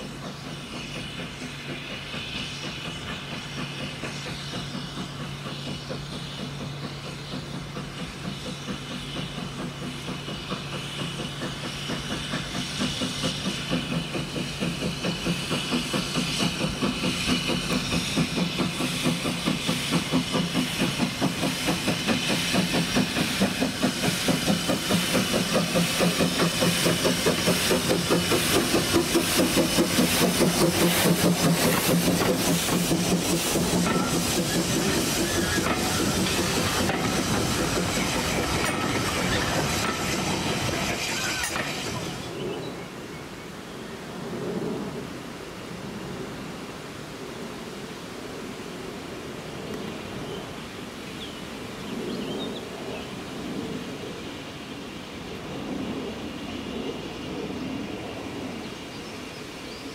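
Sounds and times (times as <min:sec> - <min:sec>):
steam locomotive exhaust chuffing: 0:00.0 - 0:47.1
hiss of steam: 0:00.0 - 0:59.9.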